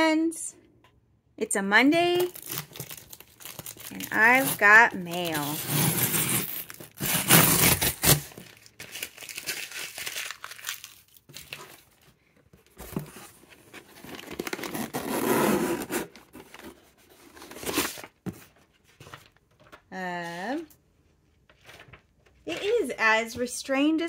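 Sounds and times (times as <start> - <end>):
packing tape ripped off box: 2.2 - 11.8, 13.9 - 16.7
paper rustling and crinkling: 2.3 - 19.9, 21.4 - 22.8.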